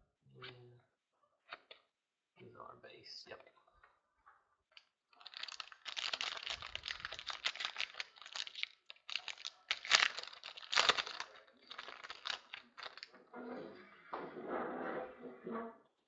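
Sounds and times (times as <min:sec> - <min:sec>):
plastic wrapping crinkling: 0:05.2 - 0:13.1
plastic wrapping ripping: 0:05.2 - 0:13.1.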